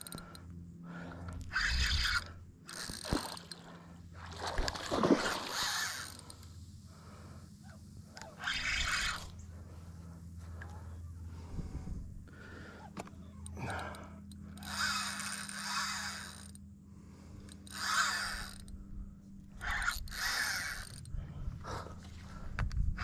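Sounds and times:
spinning reel cranking: 1.5s - 3.6s, 5.4s - 6.4s, 8.2s - 9.4s, 13.6s - 16.6s, 17.4s - 18.8s, 19.6s - 21.1s
electric motor humming: 13.1s - 21.8s.

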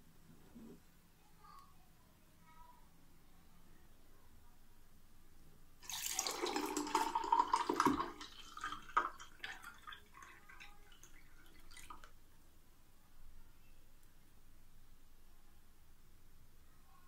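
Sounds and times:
drink pouring and splashing: 5.8s - 12.1s
liquid trickling and dripping: 5.8s - 12.2s.

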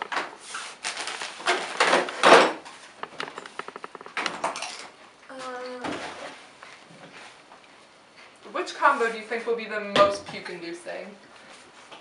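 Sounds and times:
plastic bottles knocking and rustling: 0.0s - 5.0s.

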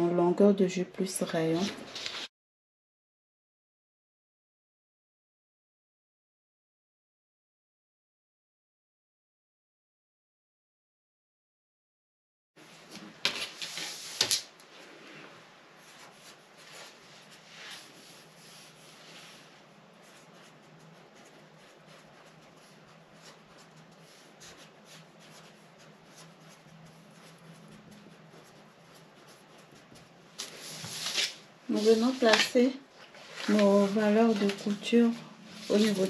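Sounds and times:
rubbing and scratching on paper: 1.0s - 2.3s, 12.6s - 36.0s.

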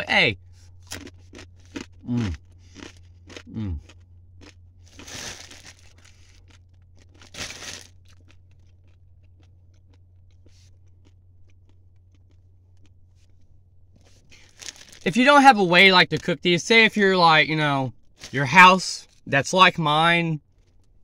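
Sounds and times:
low steady hum: 0.0s - 21.0s
dry noodles crunching: 0.7s - 13.4s, 14.0s - 15.1s
plastic bag crinkling: 4.9s - 8.8s, 14.3s - 15.1s.

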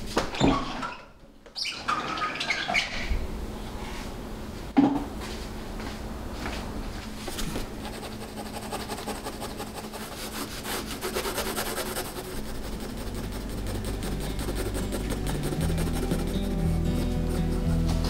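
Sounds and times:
pencil sketching on paper: 7.8s - 18.0s.

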